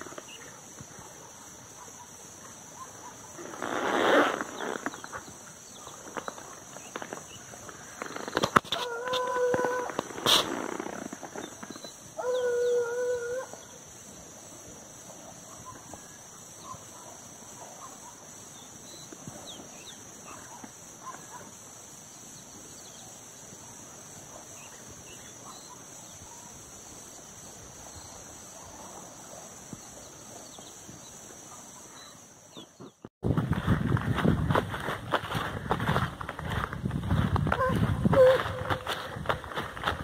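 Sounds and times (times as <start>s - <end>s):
insects droning: 0.0s - 40.0s
distant animal calls: 7.8s - 10.6s, 37.5s - 39.1s.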